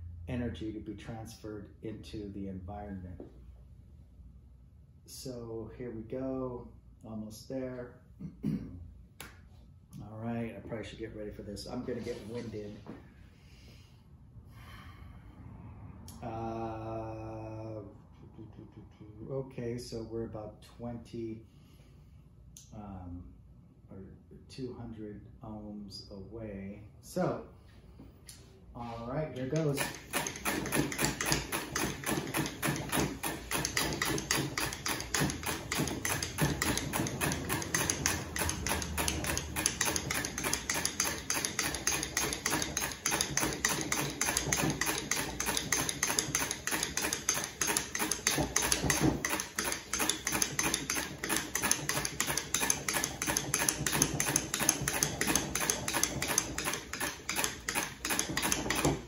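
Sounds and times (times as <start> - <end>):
hand-cranked apparatus clattering: 29.4 - 59.0.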